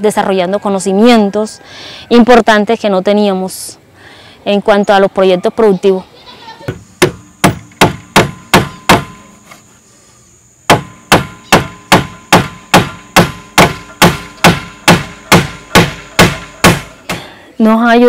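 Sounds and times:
hammer striking wood: 0:06.7 - 0:09.3, 0:10.7 - 0:17.3.

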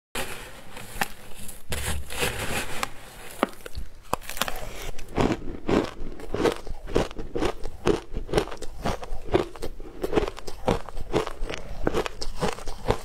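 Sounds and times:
ice crunched in mouth: 0:00.8 - 0:13.0.

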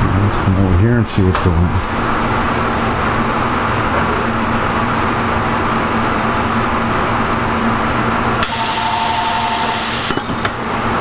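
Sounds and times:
steady machine hum: 0:00.0 - 0:11.0
machine hiss with whine: 0:08.4 - 0:11.0.

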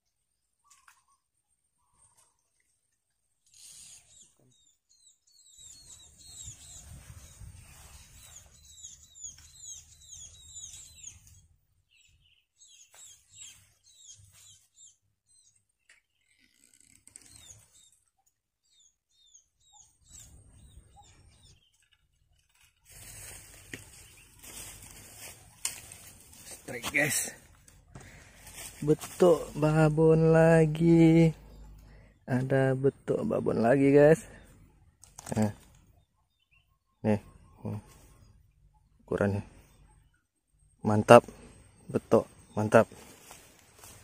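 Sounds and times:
bird chirping: 0:03.4 - 0:44.0
rustle: 0:21.8 - 0:27.2, 0:43.0 - 0:44.0.

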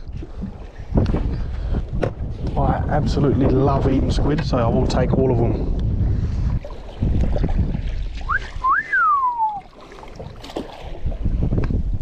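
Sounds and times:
low wind: 0:00.0 - 0:12.0
water noise: 0:00.0 - 0:12.0
person whistling: 0:08.3 - 0:09.7.

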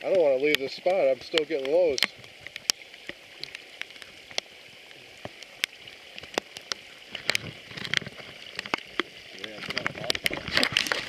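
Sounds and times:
water dripping onto lake surface: 0:00.0 - 0:11.0.

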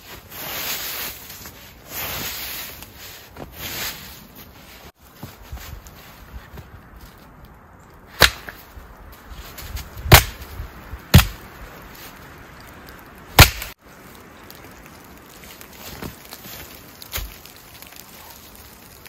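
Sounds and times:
wood being chopped: 0:08.2 - 0:08.6, 0:10.0 - 0:10.5, 0:11.1 - 0:11.4, 0:13.4 - 0:13.7, 0:17.0 - 0:17.6.

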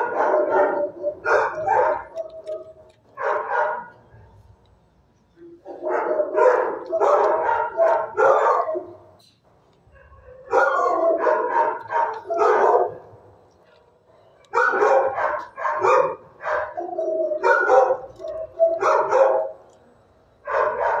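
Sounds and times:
dog barking rapidly: 0:00.0 - 0:04.0, 0:05.7 - 0:09.1, 0:10.0 - 0:13.2, 0:14.5 - 0:19.6, 0:20.5 - 0:21.0.

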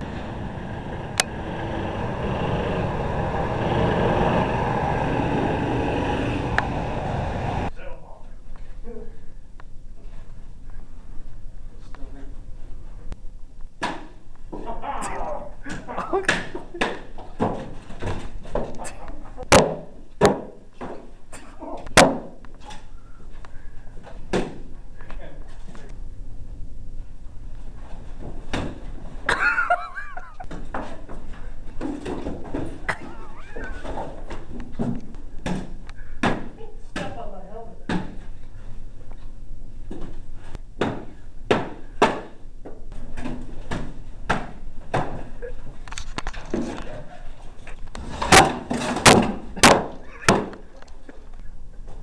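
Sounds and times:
swords and shields striking: 0:48.2 - 0:50.5.

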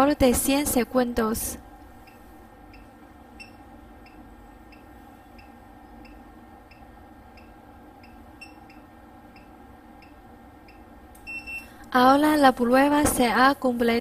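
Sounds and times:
steady low hum: 0:00.0 - 0:14.0
short high beeps: 0:11.2 - 0:11.7.

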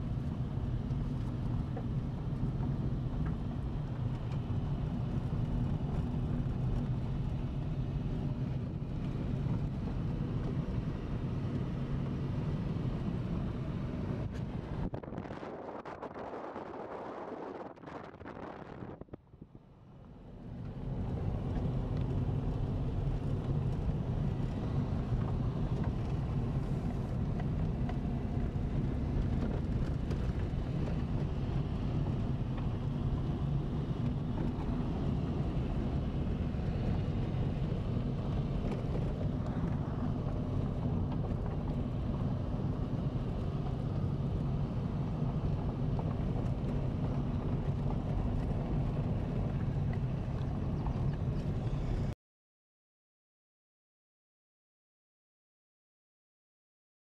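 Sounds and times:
car driving on dirt track: 0:00.0 - 0:52.2.

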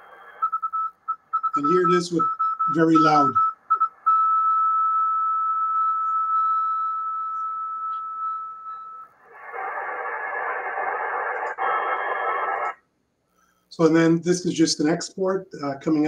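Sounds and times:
steady whistle-like tone: 0:02.2 - 0:09.1
receiver hiss of band noise: 0:09.2 - 0:12.8.

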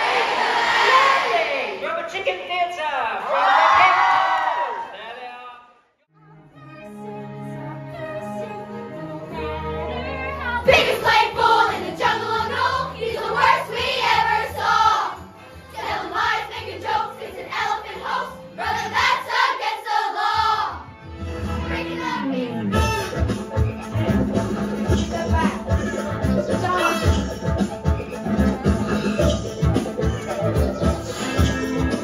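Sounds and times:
young voices singing together: 0:09.2 - 0:20.9
instrumental backing track: 0:20.9 - 0:32.0.

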